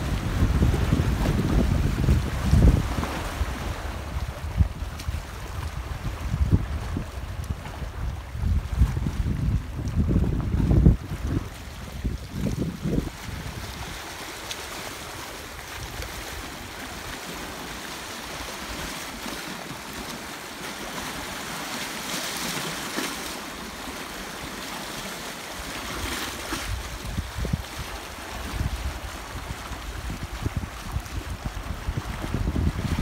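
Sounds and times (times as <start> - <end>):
wind buffeting microphone: 0.0 - 14.3, 26.0 - 33.0
waves lapping over rocks: 0.0 - 33.0.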